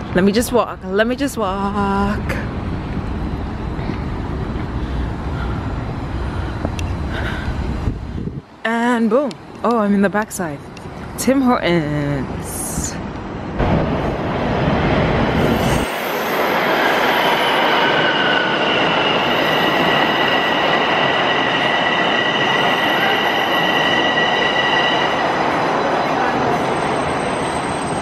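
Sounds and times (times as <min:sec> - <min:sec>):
subway train rumbling: 0:00.0 - 0:28.0
high-pitched train squeal: 0:15.3 - 0:28.0.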